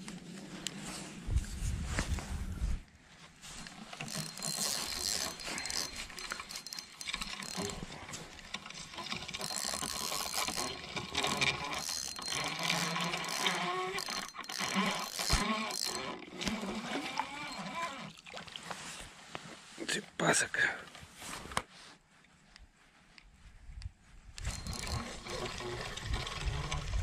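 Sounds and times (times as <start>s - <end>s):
fishing reel gears clicking: 3.7s - 18.0s, 24.4s - 27.0s.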